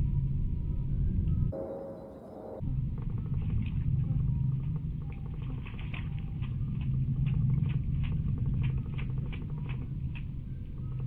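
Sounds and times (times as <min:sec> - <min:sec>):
steady low hum: 0:00.0 - 0:11.0
bird splashing in water: 0:05.0 - 0:10.4.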